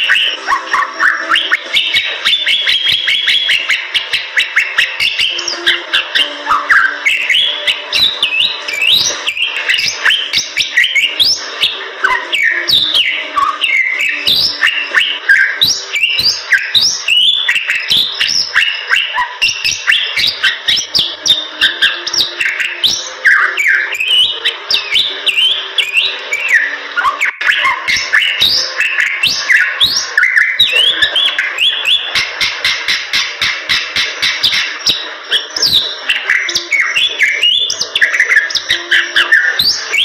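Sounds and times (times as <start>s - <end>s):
bird singing whistled notes: 0.0s - 40.0s
bird harsh chatter and clicks: 27.2s - 40.0s.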